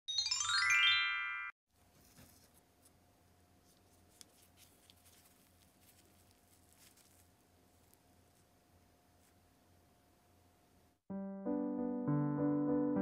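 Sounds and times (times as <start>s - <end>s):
logo jingle of rising chimes: 0.1s - 1.5s.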